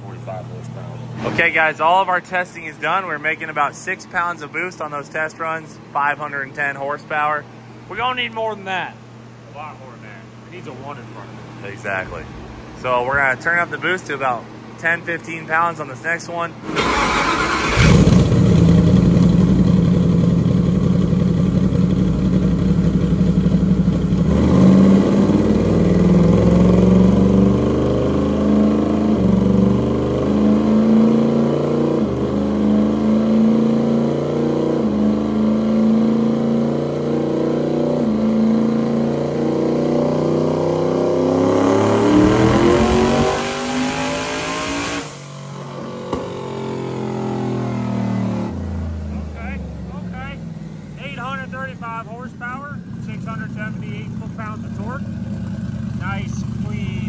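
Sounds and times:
turbocharged engine on dyno: 16.6s - 57.0s.

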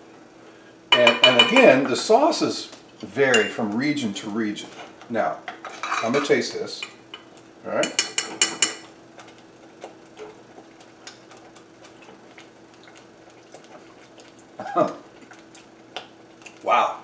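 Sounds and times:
steady low hum: 0.0s - 17.0s
metal spoon clinking on saucepan: 0.9s - 1.6s, 3.3s - 3.6s, 7.8s - 8.8s
sauce simmering and popping: 7.0s - 16.7s.

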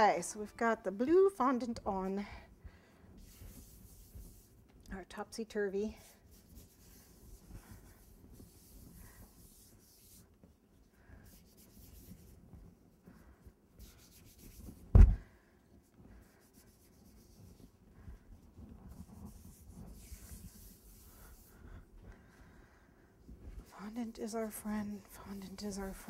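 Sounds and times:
hands rubbing fondant: 2.2s - 26.0s
sharp thump: 14.9s - 15.2s.

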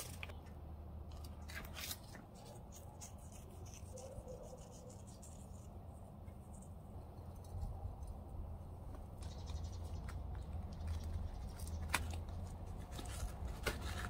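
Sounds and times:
paper seed packet rustling: 0.0s - 0.5s, 1.1s - 4.2s, 10.0s - 14.0s
low steady hum: 0.0s - 14.0s.

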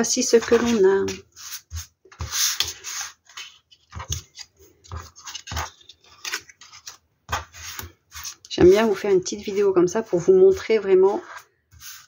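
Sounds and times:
paper sliding on plastic mat: 0.3s - 12.0s.

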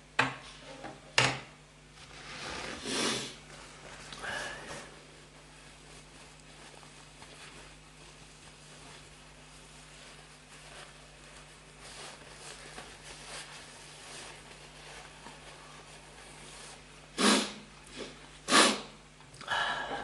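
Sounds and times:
man sniffling: 4.2s - 4.9s, 17.2s - 20.0s.

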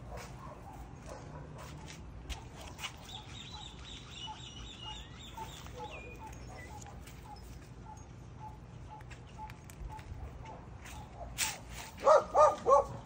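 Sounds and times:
bird-like chirps: 2.7s - 9.7s.

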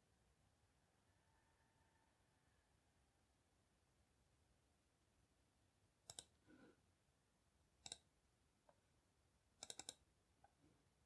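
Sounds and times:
computer mouse clicks: 6.0s - 6.4s, 7.8s - 8.1s, 9.6s - 10.0s.

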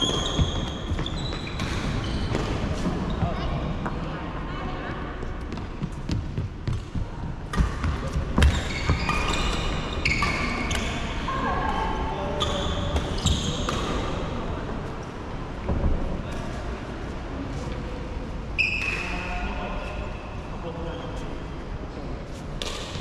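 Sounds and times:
shoes squeaking on wooden floor: 0.0s - 3.5s
rackets hitting shuttlecock: 22.6s - 23.0s.

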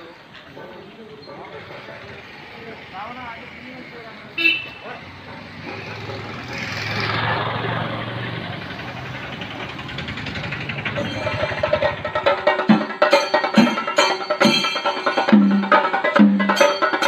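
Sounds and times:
heavy deep drum strokes: 8.4s - 13.9s.

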